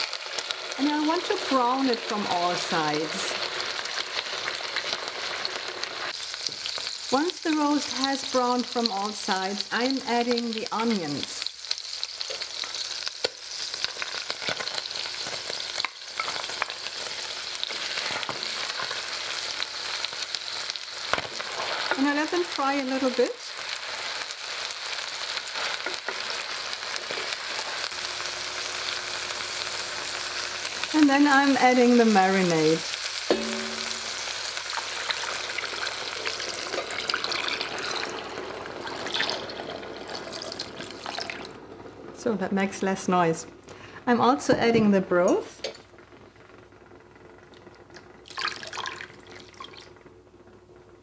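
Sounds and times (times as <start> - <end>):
onions sizzling in oil: 0.0 - 50.2
glass clink: 33.3 - 34.2.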